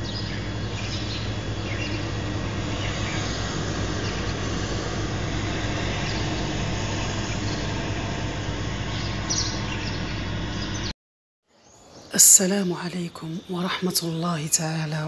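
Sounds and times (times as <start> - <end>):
faint bird chirps: 0.0 - 4.3
low hum: 0.0 - 10.9.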